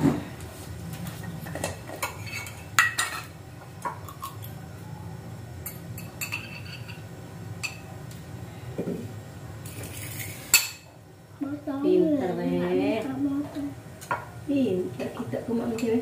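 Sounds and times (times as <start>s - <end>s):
metal spoons clinking on ceramic plates: 1.6s - 3.3s, 5.6s - 7.0s.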